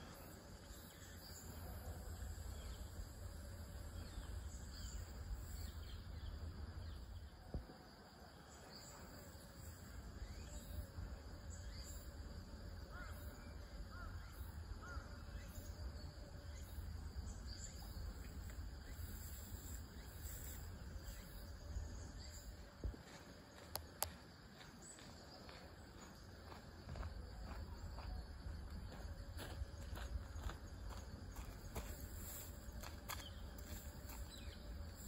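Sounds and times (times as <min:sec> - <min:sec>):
insect chirring: 0:09.2 - 0:22.6, 0:27.8 - 0:35.0.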